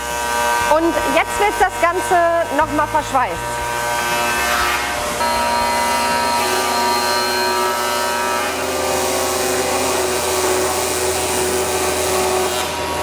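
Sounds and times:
welding arc buzzing and hissing: 0.0s - 13.0s.

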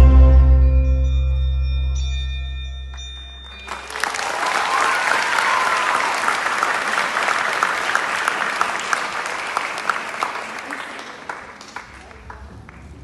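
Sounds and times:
audience applause: 3.5s - 13.0s.

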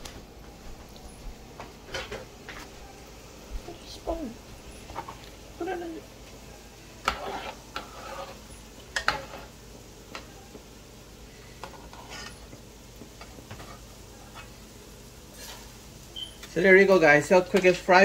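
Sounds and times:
oil sizzling: 0.0s - 18.0s
metal spoon scraping a pot: 7.0s - 9.5s, 11.6s - 12.5s.

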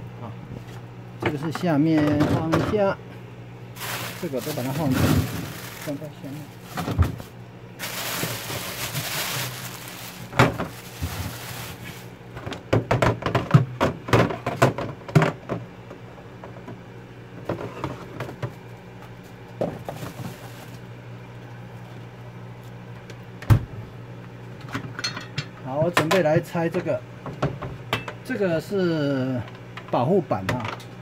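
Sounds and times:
steady low hum: 0.0s - 31.0s
containers clattering: 3.8s - 12.1s
plastic bag rustling: 3.8s - 12.2s, 19.8s - 20.9s.

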